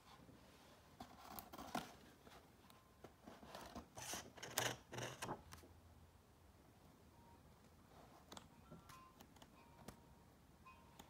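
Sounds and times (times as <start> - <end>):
book pages turning: 1.0 - 2.4, 3.1 - 5.6.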